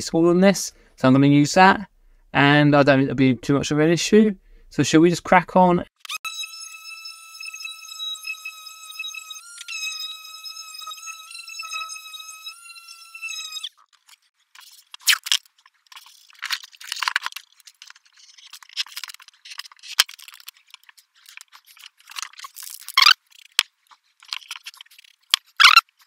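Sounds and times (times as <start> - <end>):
electric orbital sander whining: 6.1 - 13.8
paper and tape rustling and tearing: 13.4 - 26.0.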